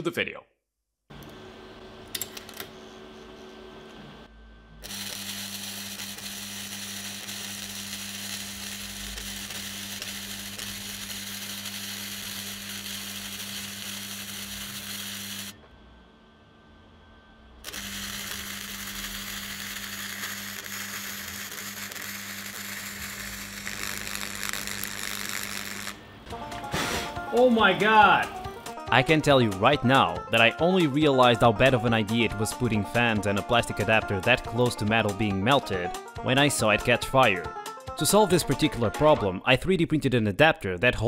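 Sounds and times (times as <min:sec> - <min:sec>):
welding arc crackling and hissing: 0:04.8 - 0:15.6, 0:17.6 - 0:26.0.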